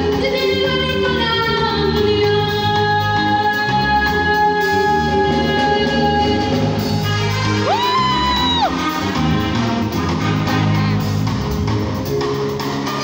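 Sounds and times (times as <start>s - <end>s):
woman singing: 0.0s - 7.0s
bass guitar: 0.0s - 13.0s
drum kit: 0.0s - 13.0s.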